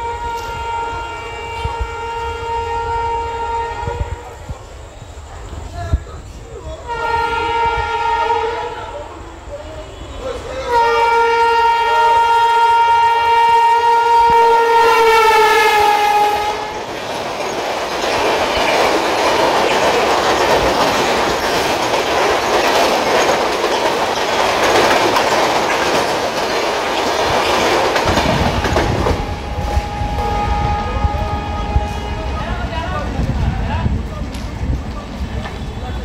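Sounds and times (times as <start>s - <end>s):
train horn blowing: 0.0s - 4.5s, 6.8s - 9.1s, 9.8s - 17.0s, 28.2s - 32.7s
train wheels rattling over rails: 0.0s - 36.0s.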